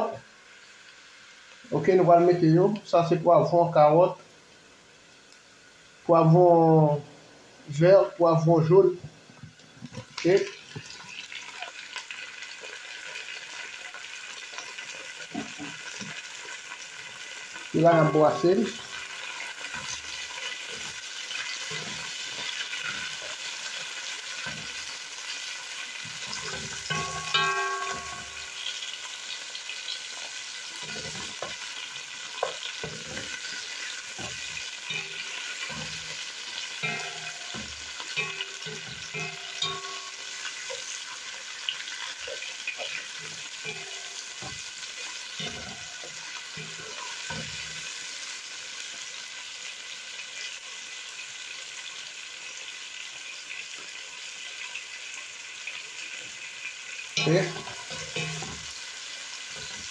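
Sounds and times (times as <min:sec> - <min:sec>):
vegetables sizzling in oil: 0:00.0 - 0:59.9
ringing clank: 0:26.5 - 0:28.5, 0:34.2 - 0:36.1, 0:36.8 - 0:40.5, 0:43.6 - 0:44.6, 0:45.4 - 0:47.6, 0:57.2 - 0:58.7
wooden spoon stirring and scraping: 0:30.8 - 0:41.1.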